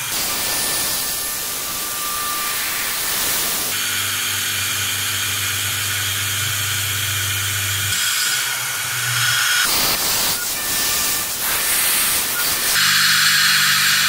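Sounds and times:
air nozzle hissing: 0.0s - 3.8s, 9.6s - 14.0s
milling machine spindle hum: 3.7s - 14.0s.

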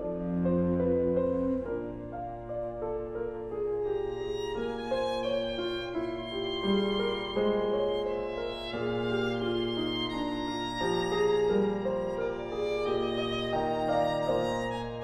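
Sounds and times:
steady low note: 0.0s - 1.9s
violin playing slow notes: 0.0s - 2.1s.

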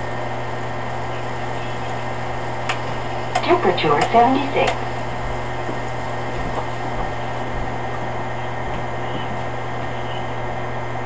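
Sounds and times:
low electric hum: 0.9s - 10.6s
drum mechanism running: 1.3s - 10.4s.

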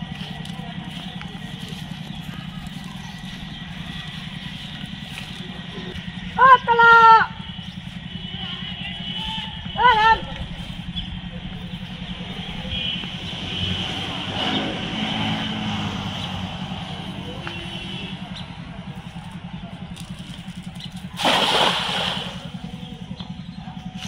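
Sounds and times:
cast net splashing on water: 21.1s - 22.6s.

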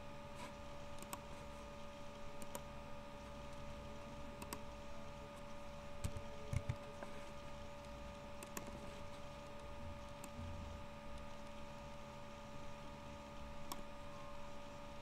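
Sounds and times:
steady electrical hum: 0.0s - 15.0s
computer mouse clicks: 0.9s - 1.3s, 2.4s - 2.7s, 4.4s - 4.6s, 5.4s - 6.8s, 7.8s - 10.4s, 13.6s - 13.9s
keystrokes: 1.0s - 1.3s, 2.4s - 2.7s, 4.4s - 4.6s, 8.4s - 8.8s.

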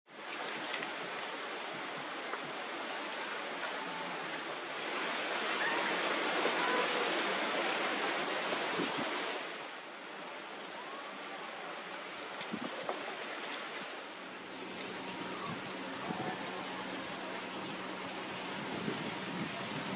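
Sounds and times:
wind in trees: 0.1s - 19.9s
faint whistled calls: 5.6s - 5.9s.

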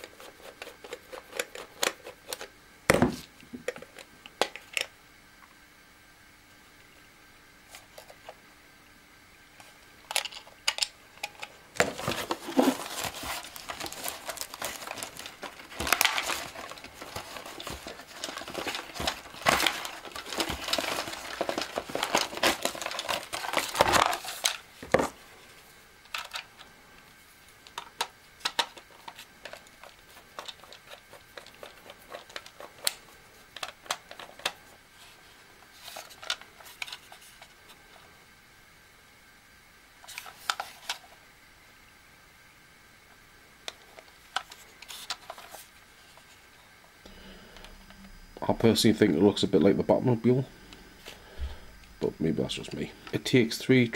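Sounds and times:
cardboard rustling and crinkling: 11.8s - 25.2s, 28.4s - 37.6s, 44.0s - 46.5s.

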